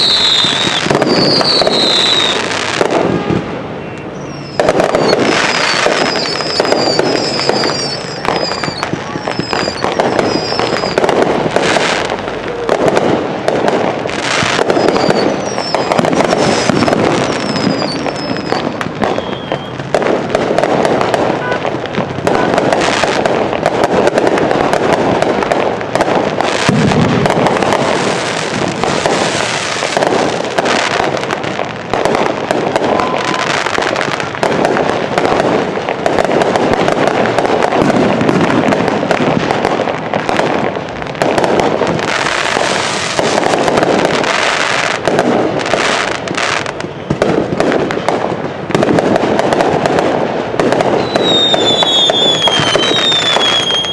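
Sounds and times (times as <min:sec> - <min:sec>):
falling firework whistles: 0:00.0 - 0:03.1, 0:03.8 - 0:13.0, 0:13.9 - 0:21.7, 0:32.0 - 0:35.3, 0:41.7 - 0:48.1, 0:50.7 - 0:53.9
fireworks bursting and crackling: 0:00.0 - 0:53.9.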